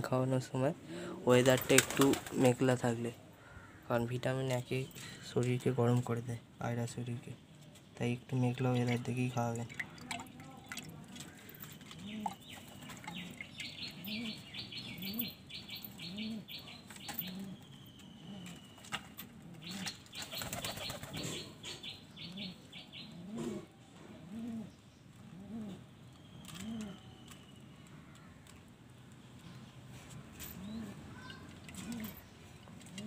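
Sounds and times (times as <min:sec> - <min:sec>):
pigeons cooing: 0:11.2 - 0:27.4, 0:30.4 - 0:33.0.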